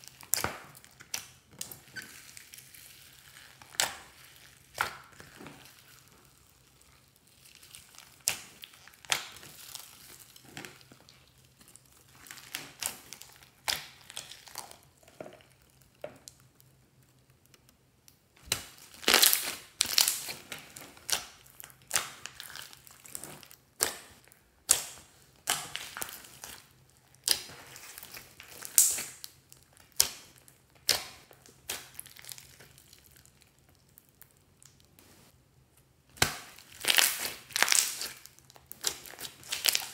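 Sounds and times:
slime squished by hand crackling: 0.0 - 35.0, 36.1 - 39.9.

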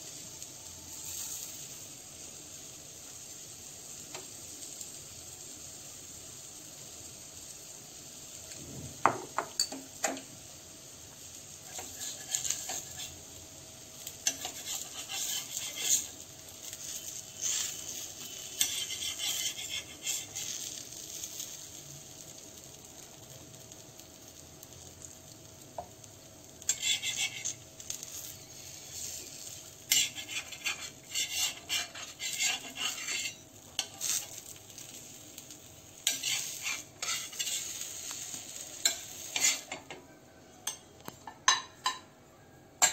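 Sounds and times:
crepe sizzling in a frying pan: 0.0 - 42.9
metal spatula scraping a pan: 11.6 - 13.3, 14.0 - 21.5, 26.6 - 40.0.

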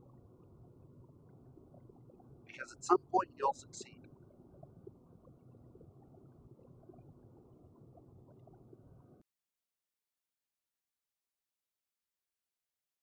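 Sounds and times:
faint low hum: 0.0 - 9.2.

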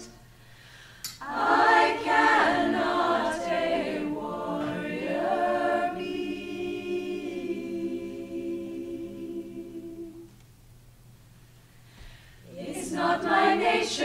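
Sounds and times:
women's choir singing: 1.2 - 10.3, 12.4 - 14.0.

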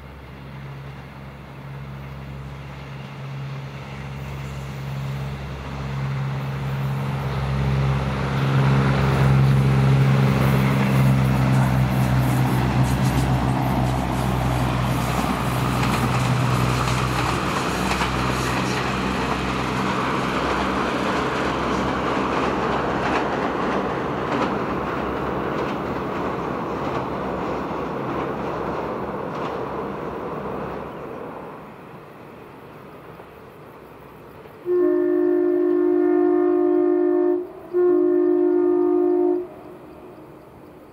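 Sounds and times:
diesel engine drone: 0.0 - 25.5
train wheels rumbling on rails: 0.0 - 40.9.

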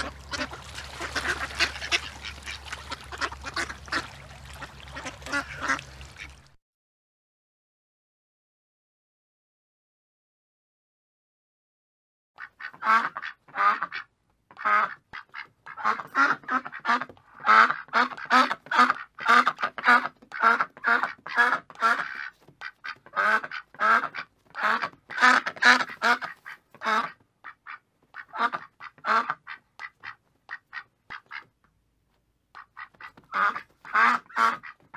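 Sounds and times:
duck quacking: 0.0 - 6.5, 12.4 - 31.5, 32.6 - 34.9.

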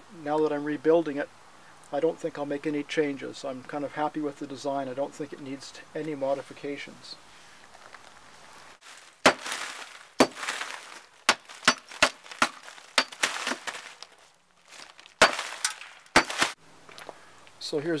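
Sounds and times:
sharp cracking strikes: 8.8 - 16.6.

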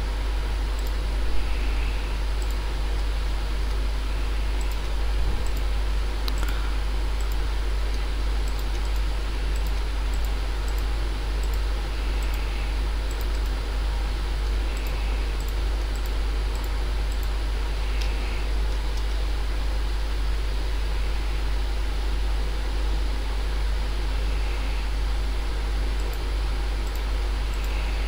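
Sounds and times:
low electrical hum: 0.0 - 28.0
faint clicks: 0.8 - 1.0, 2.4 - 3.8, 4.6 - 6.6, 7.2 - 12.5, 14.4 - 19.2, 26.8 - 27.8.

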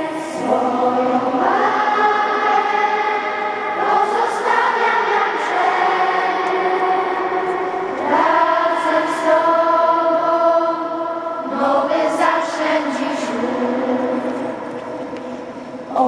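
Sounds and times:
choir singing sustained notes: 0.0 - 16.0.

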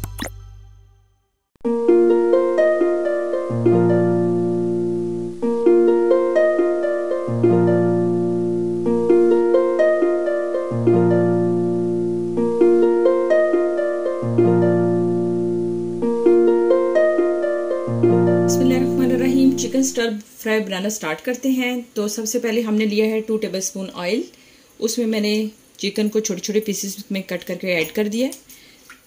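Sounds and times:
plucked harp-like melody: 1.6 - 20.1
low bass note: 17.9 - 20.0.

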